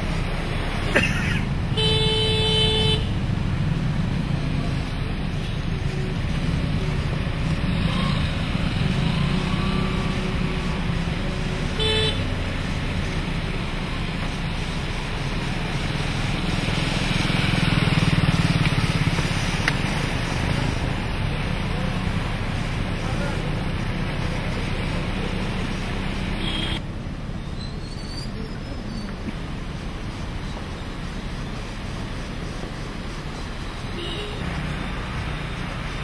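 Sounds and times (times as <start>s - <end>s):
car and motorcycle engines: 0.0s - 36.0s
car horn toot: 1.7s - 3.2s, 11.8s - 12.3s, 26.4s - 26.8s.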